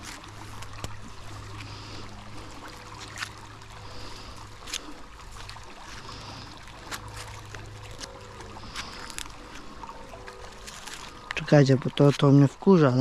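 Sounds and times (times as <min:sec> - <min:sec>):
constant low hum: 0:00.0 - 0:13.0
trickling water: 0:00.0 - 0:13.0.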